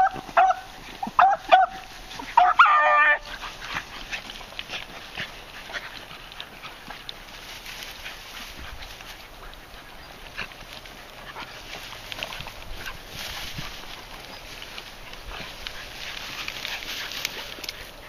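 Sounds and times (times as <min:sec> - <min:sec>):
dogs whining and yipping: 0:00.0 - 0:06.8.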